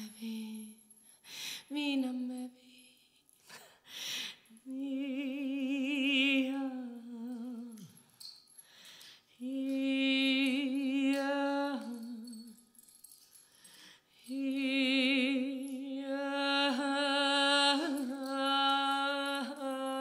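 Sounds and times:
woman singing with vibrato: 0.0s - 0.8s, 1.7s - 2.8s, 4.6s - 8.0s, 9.4s - 12.6s, 14.3s - 20.0s.

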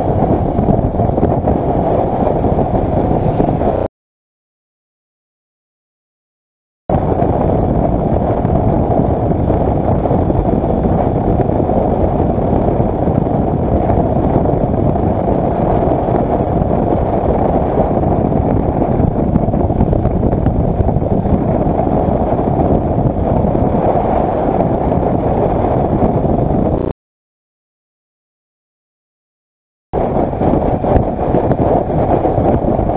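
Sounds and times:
road noise: 0.0s - 3.9s, 6.9s - 26.9s
wind rushing over microphone: 0.0s - 3.9s, 6.9s - 26.9s, 30.0s - 32.9s.

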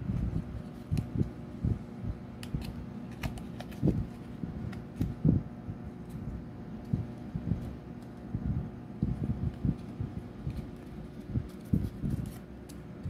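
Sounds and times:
faint steady hum: 0.0s - 13.0s
hands handling paper: 0.1s - 1.4s, 2.4s - 5.2s, 9.2s - 13.0s
paper clicks and creases: 2.4s - 5.2s, 9.5s - 13.0s.

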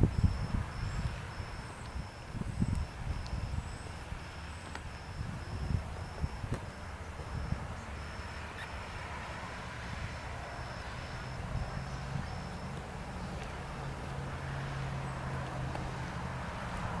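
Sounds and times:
faint high-pitched chirp: 0.0s - 9.0s
low steady hum: 0.0s - 17.0s
wind rumbling on microphone: 0.0s - 17.0s.

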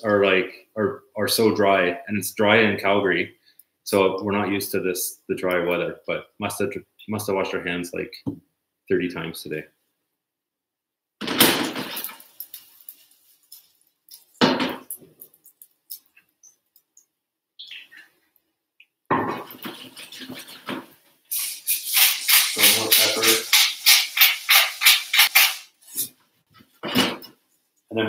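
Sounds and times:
frying pan clattering: 11.2s - 12.9s, 14.3s - 15.2s, 21.9s - 25.7s.

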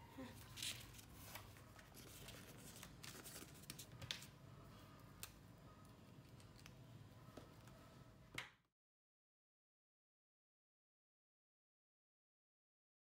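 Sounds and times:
paper rustling: 0.4s - 4.3s.

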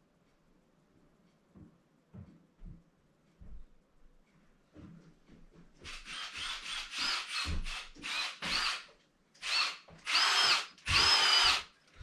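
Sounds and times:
impact driver motor whining: 9.4s - 11.6s.

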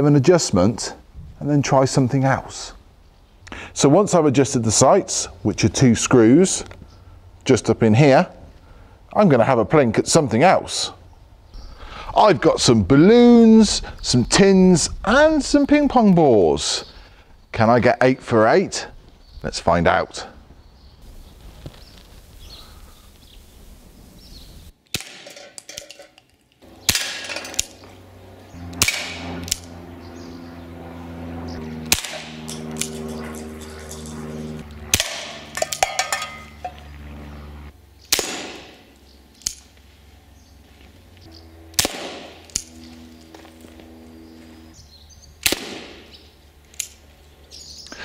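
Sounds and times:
pellet pistol shots: 24.9s - 25.6s, 26.8s - 27.8s, 28.7s - 29.8s, 31.8s - 34.0s, 34.9s - 36.6s, 38.1s - 39.6s, 41.7s - 42.8s, 45.4s - 46.2s.

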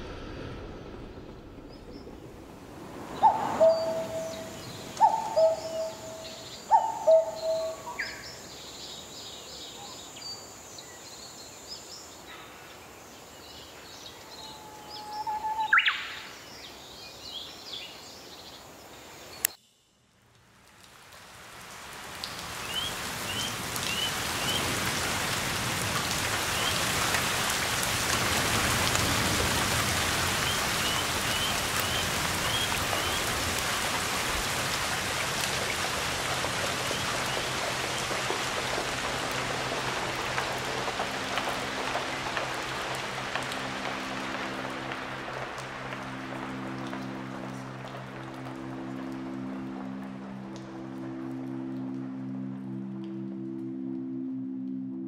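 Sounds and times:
steady rain: 1.2s - 54.6s
birds calling: 3.1s - 8.4s
two-note bird calls: 3.2s - 8.2s.

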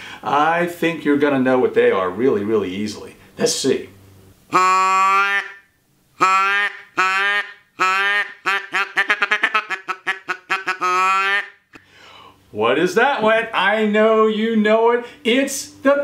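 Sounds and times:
duck call quacking: 4.5s - 5.6s, 6.2s - 11.8s.

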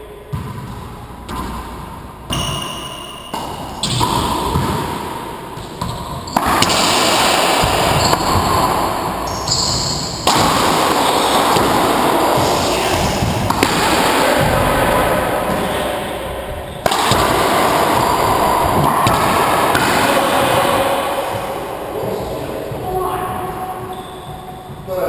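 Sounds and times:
racquetball hits ringing in court: 0.2s - 24.9s.

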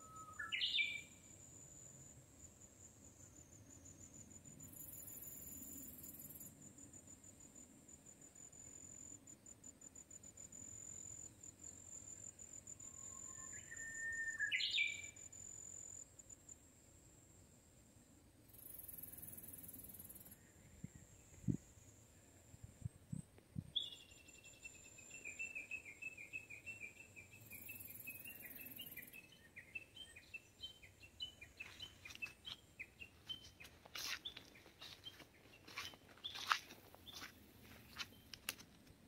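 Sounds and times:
faint high insect buzz: 0.4s - 22.9s, 23.7s - 38.6s
footsteps in dry grass: 31.6s - 38.8s.

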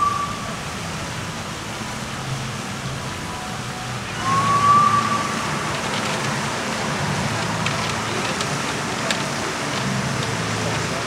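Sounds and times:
high whistle-like tone: 0.0s - 0.7s, 4.0s - 5.8s.

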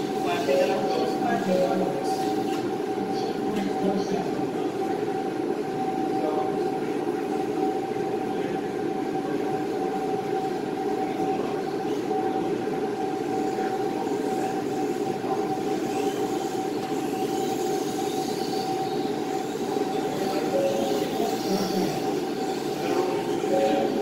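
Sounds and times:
mechanical hum with constant tone: 0.0s - 24.0s
faint high whines: 18.2s - 24.0s.

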